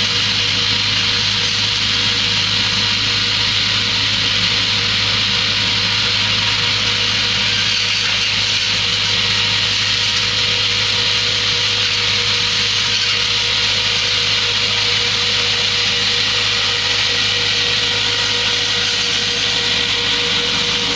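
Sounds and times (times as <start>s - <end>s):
tractor engine running: 0.0s - 20.9s
spinning blades cutting foliage: 15.8s - 20.9s.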